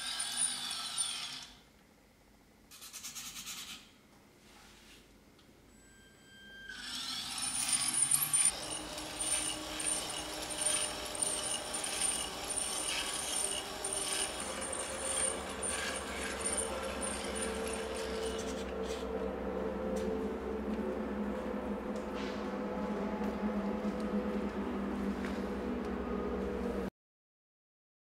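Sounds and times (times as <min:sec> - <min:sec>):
electric motor whirring: 0:06.7 - 0:19.1
metal gears clattering: 0:07.3 - 0:19.0
low whine: 0:08.0 - 0:26.9.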